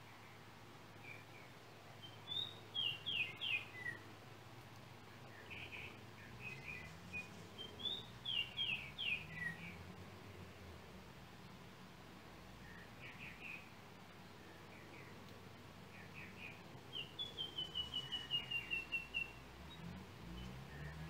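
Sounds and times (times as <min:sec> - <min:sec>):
oriole whistling song: 0:02.0 - 0:04.0, 0:05.3 - 0:09.8, 0:16.0 - 0:21.0.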